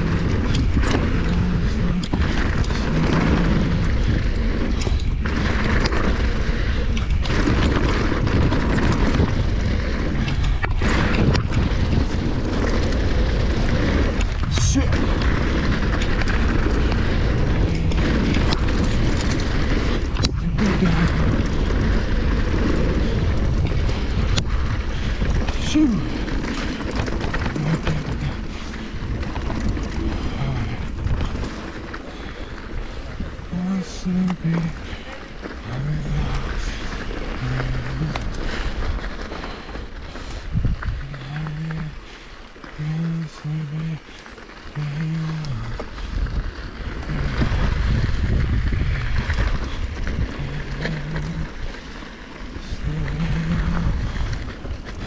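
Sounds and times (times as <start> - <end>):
bike rattling and clicking: 0.0 - 55.0
bike tyre noise on gravel: 0.0 - 55.0
low buzzing hum: 0.0 - 55.0
wind rushing over microphone: 0.0 - 55.0.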